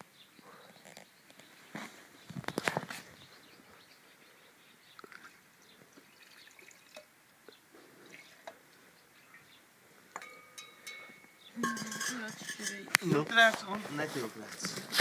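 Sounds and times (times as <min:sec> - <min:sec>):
liquid trickling into bottle: 0:06.0 - 0:07.1.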